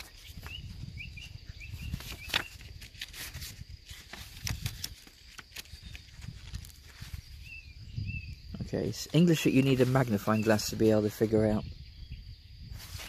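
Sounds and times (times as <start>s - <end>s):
bird chirping: 0.0s - 2.8s, 6.9s - 13.0s
paper pages rustling: 0.0s - 7.5s, 9.3s - 10.8s, 12.7s - 13.0s.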